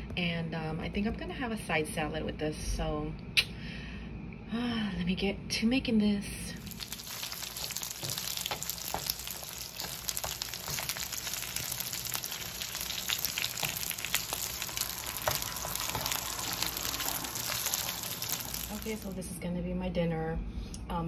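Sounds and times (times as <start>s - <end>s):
dumplings sizzling in a pan: 6.6s - 19.2s
small crackles and pops: 6.6s - 19.2s.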